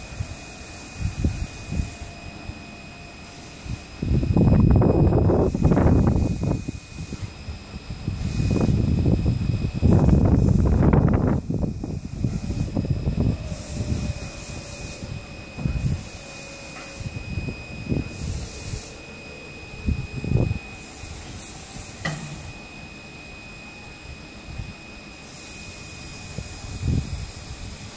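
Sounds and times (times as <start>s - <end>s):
wind buffeting microphone: 0.0s - 25.1s, 25.7s - 27.9s
faint high whine: 0.0s - 27.9s
sharp click: 22.0s - 22.4s.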